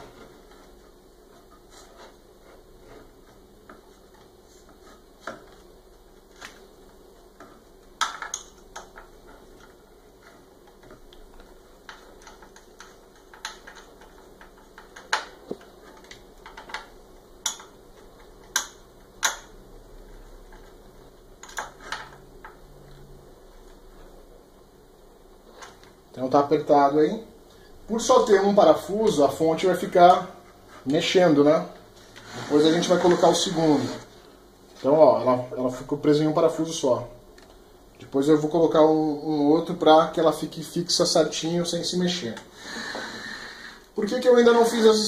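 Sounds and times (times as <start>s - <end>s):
screwdriver clicks and taps: 18.4s - 19.5s.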